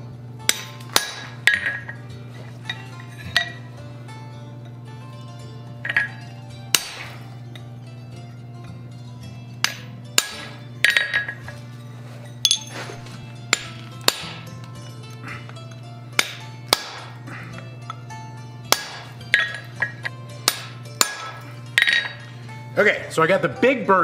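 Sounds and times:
hammer striking punch on anvil: 0.4 - 2.0, 5.9 - 7.3, 9.6 - 11.6, 13.5 - 14.6, 16.1 - 17.2, 18.7 - 22.3.

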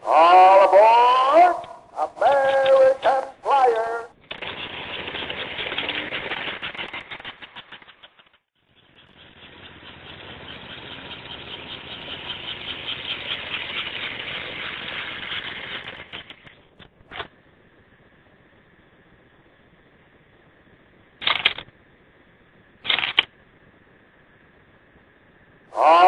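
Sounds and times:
model train wheels clicking on rails: 4.2 - 17.3, 21.2 - 21.7, 22.8 - 23.3.

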